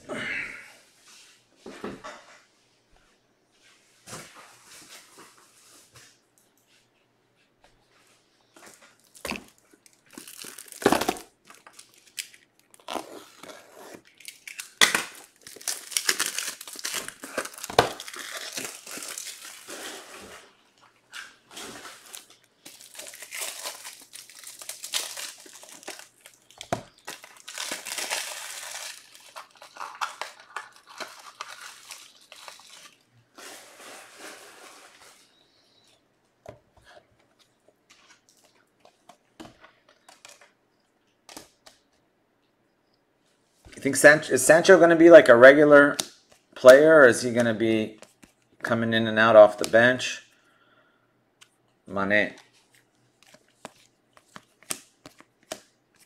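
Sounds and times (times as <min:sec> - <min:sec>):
plastic packaging crinkling and tearing: 0:09.0 - 0:35.2.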